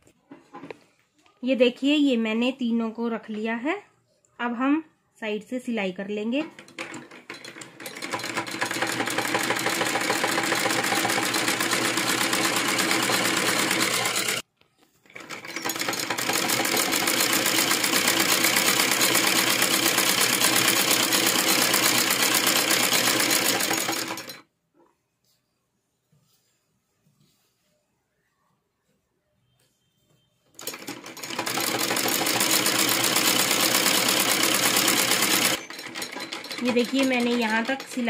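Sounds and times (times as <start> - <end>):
sewing machine stitching: 6.3 - 14.4, 15.0 - 24.4, 30.6 - 38.0.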